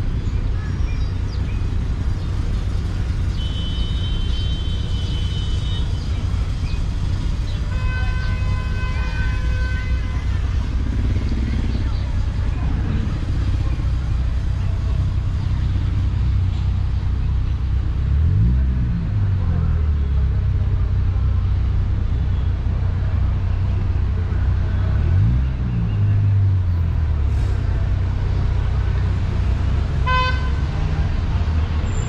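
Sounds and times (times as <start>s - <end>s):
traffic rumble: 0.0s - 32.0s
vehicle engine accelerating: 10.6s - 21.7s, 22.7s - 32.0s.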